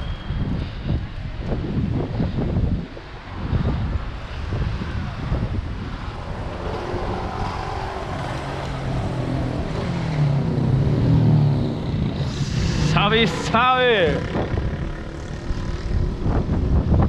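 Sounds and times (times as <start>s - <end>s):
wind rumbling on microphone: 0.0s - 17.0s
motorcycle engine running: 8.3s - 17.0s.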